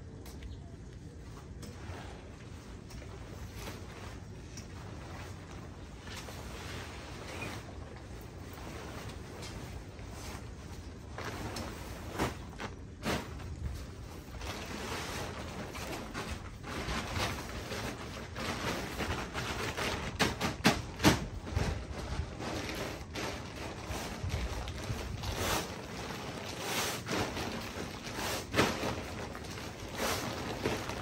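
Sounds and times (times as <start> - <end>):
tent fabric rustling and swishing: 1.3 - 31.0.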